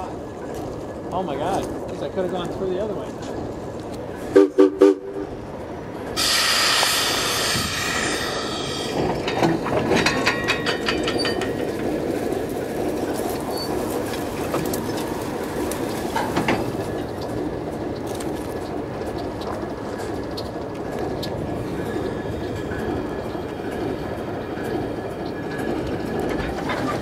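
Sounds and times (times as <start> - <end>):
train wheels rumbling on rail: 0.0 - 27.0
loud horn blasts: 4.3 - 5.4
metallic wheel squeal: 6.2 - 11.6, 13.5 - 13.8
squeaks and clanks: 7.4 - 11.9, 13.3 - 15.0, 24.4 - 27.0.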